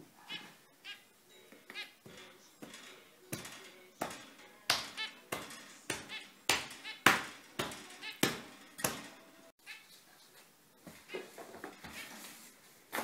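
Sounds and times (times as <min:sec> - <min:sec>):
finches beeping calls: 0:00.2 - 0:02.1, 0:05.9 - 0:07.3, 0:07.9 - 0:08.3.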